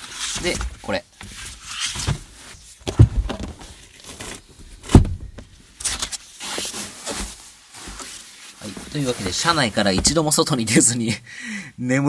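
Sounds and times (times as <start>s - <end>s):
fabric rustling: 0.0s - 10.6s
sleeping bag dull thumps: 2.8s - 5.6s, 8.7s - 10.4s.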